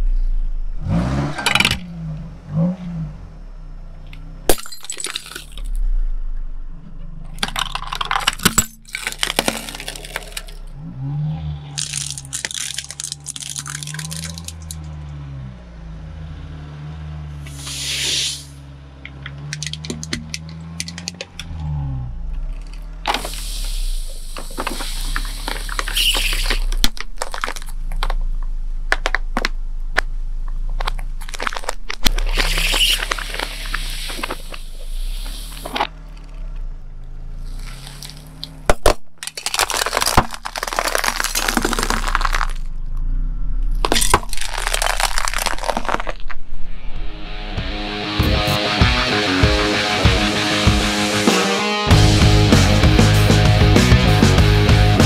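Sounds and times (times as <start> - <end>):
car engine low note: 0.0 - 4.6, 5.2 - 38.8, 42.0 - 45.5, 46.3 - 55.0
plastic crackling and snapping: 7.4 - 10.6, 11.8 - 14.9, 19.1 - 21.5, 24.4 - 28.2, 30.7 - 34.6, 37.5 - 42.7, 43.8 - 46.4
aerosol can bursting: 17.5 - 18.6, 23.2 - 26.7, 32.3 - 35.8
bottle bursting and spraying: 17.5 - 18.6, 23.2 - 26.7, 32.3 - 35.8.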